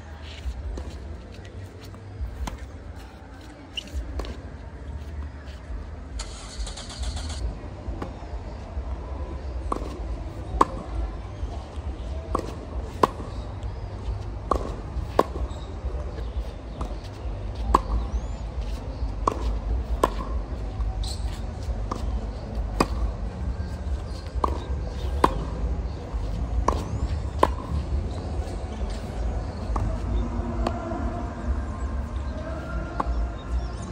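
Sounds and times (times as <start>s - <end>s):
tennis ball struck by racket: 9.7s - 10.9s, 14.4s - 30.8s.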